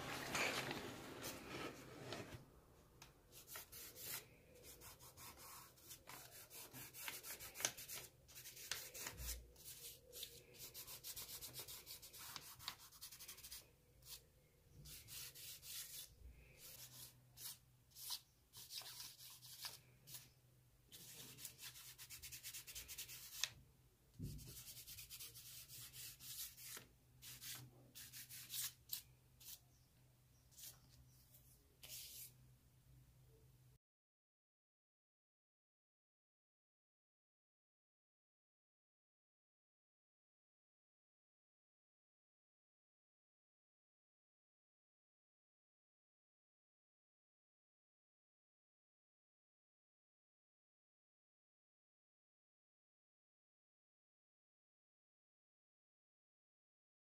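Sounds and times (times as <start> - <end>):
charcoal scraping on paper: 3.3 - 14.2, 14.8 - 20.3, 20.9 - 23.5, 24.4 - 29.6.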